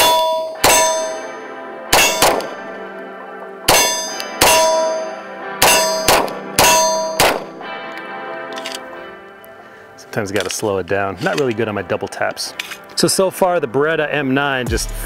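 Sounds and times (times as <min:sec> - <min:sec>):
steel target clanging: 0:00.0 - 0:02.7, 0:03.7 - 0:07.5
pistol shots: 0:00.0 - 0:02.8, 0:03.7 - 0:07.6.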